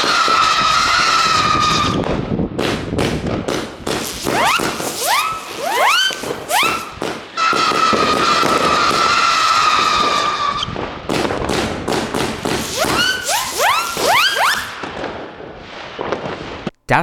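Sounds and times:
fireworks rising whistle: 0.0 - 2.2, 3.8 - 10.9, 12.2 - 16.4
fireworks pops and crackles: 0.0 - 16.8
fireworks shrill buzzing: 3.8 - 10.5, 12.2 - 15.3.

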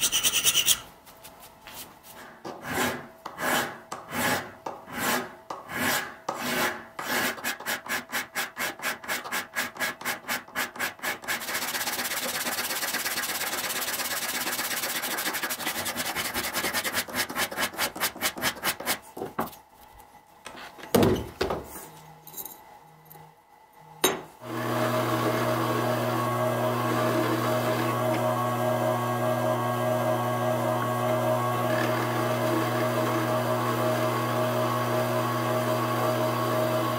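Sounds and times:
file rasping on steel blade: 0.0 - 0.9, 2.6 - 19.0.

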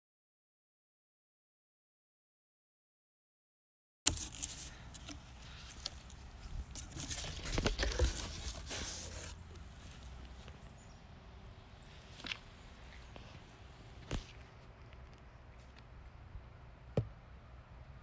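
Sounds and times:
bird scratching in cardboard box: 4.1 - 9.4.

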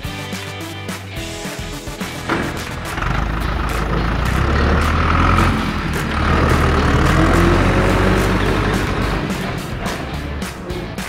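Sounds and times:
truck engine rumbling: 1.8 - 11.0.

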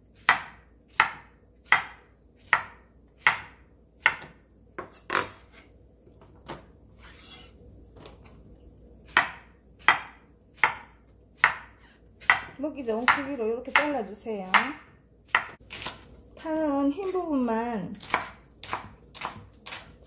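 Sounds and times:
knife chopping on wooden board: 0.2 - 5.6, 9.0 - 13.9, 14.5 - 16.1, 18.0 - 20.0
soft scraping: 6.9 - 7.6.

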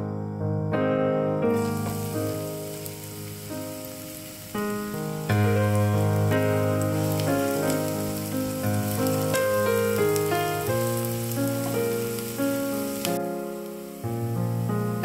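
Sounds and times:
gentle piano music: 0.0 - 15.0
onions sizzling in hot oil: 1.5 - 15.0.

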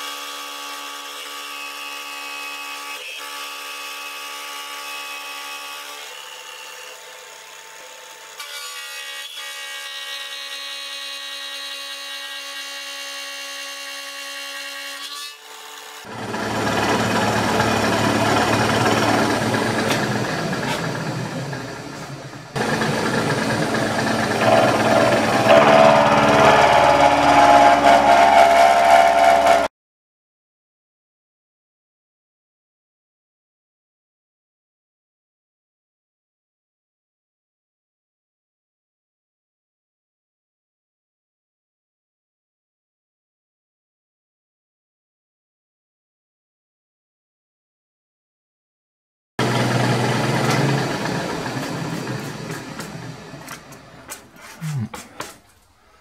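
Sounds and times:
rough milling cut into steel: 15.5 - 29.7
milling machine whining: 16.1 - 29.7, 49.4 - 54.6.

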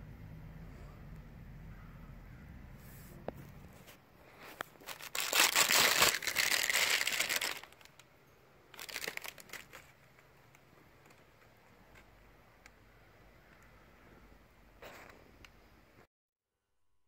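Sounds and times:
plastic wrap crinkling: 4.3 - 8.1, 8.7 - 11.5.

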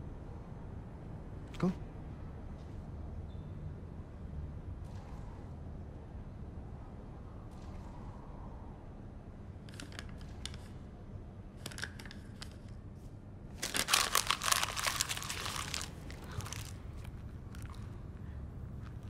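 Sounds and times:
low steady hum: 0.0 - 19.0
paper crinkling: 13.6 - 17.8.

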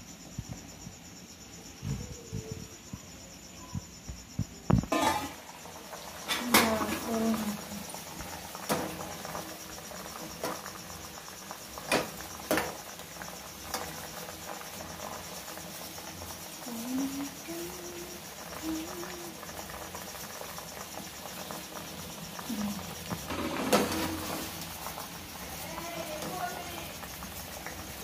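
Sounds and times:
cricket chirping: 0.0 - 28.0
water boiling in a pot: 0.0 - 28.0.

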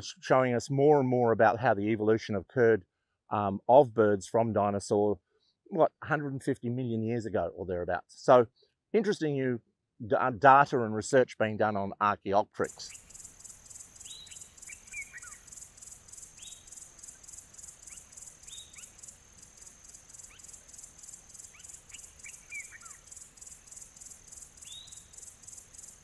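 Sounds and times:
pulsing insect chorus: 12.7 - 26.0
bird whistles and chirps: 12.8 - 15.4, 17.8 - 19.0, 21.4 - 23.2, 24.6 - 25.3.

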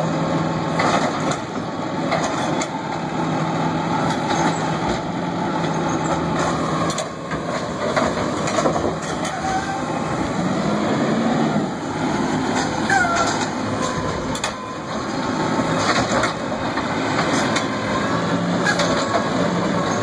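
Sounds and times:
garbage truck engine hum: 0.0 - 20.0
hydraulics working: 0.0 - 20.0
trash cart knocking and clattering: 0.8 - 2.7, 6.4 - 9.4, 15.7 - 17.7.

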